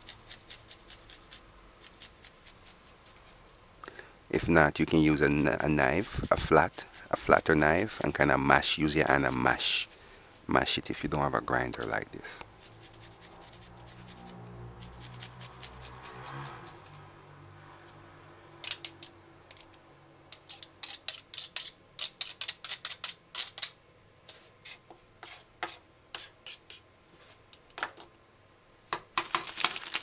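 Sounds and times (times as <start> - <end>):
knife scraping and tapping grater: 0.0 - 3.3
garlic rasped on metal grater: 0.0 - 3.4, 12.6 - 16.8.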